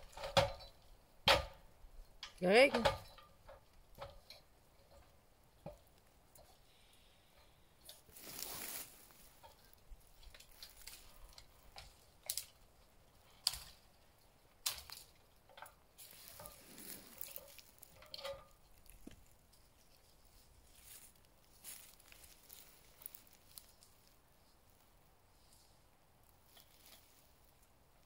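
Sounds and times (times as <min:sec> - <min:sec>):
knocks and clicks of lumber: 0:00.0 - 0:01.7.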